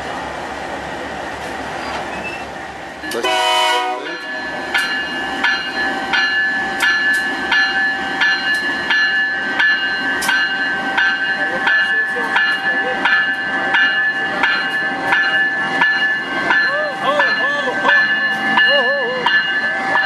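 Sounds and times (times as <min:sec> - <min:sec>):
diesel locomotive running: 0:00.0 - 0:20.0
locomotive bell ringing: 0:03.0 - 0:20.0
locomotive horn blast: 0:03.1 - 0:04.2.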